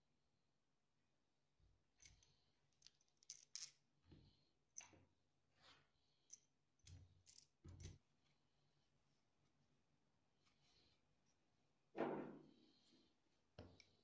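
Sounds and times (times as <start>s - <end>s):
bolts and nuts clinking: 2.0s - 3.8s, 6.3s - 8.1s.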